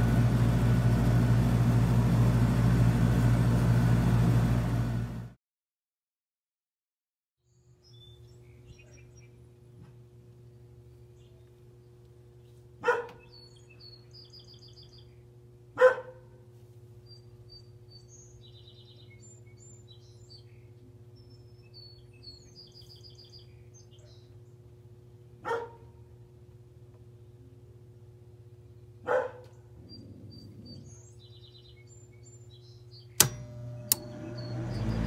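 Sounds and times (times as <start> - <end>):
small birds chirping: 7.5 - 15.9, 17.0 - 24.9, 28.7 - 35.0
steady low hum: 7.6 - 35.0
dog barking: 12.8 - 13.3, 15.8 - 16.4, 25.4 - 26.0, 29.0 - 29.6.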